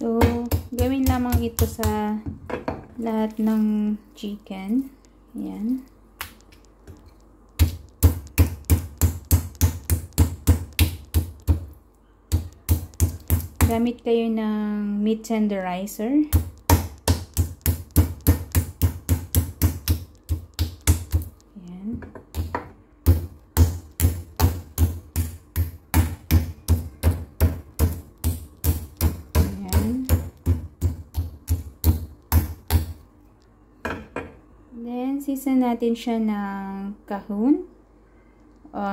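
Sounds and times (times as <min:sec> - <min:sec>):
meat mallet thudding on board: 0:00.2 - 0:02.8, 0:07.6 - 0:13.8, 0:16.3 - 0:21.4, 0:22.0 - 0:33.0.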